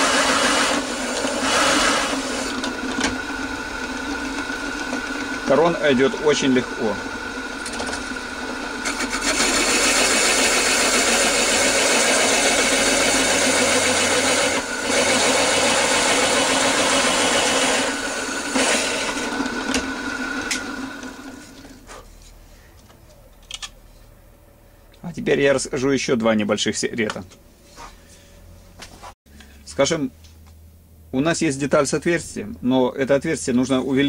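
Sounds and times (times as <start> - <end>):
hole saw cutting through wood: 0.0 - 21.6.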